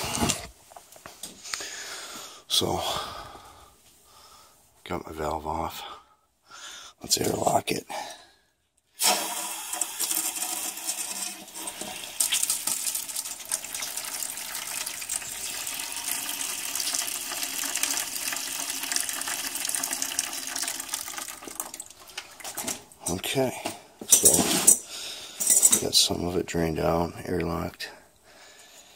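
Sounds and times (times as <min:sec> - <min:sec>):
water splashing into a bucket: 0:09.0 - 0:23.0.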